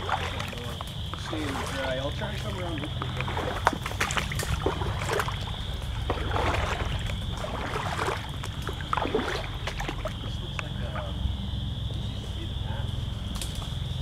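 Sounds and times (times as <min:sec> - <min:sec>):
frogs chorus: 0:00.0 - 0:14.0.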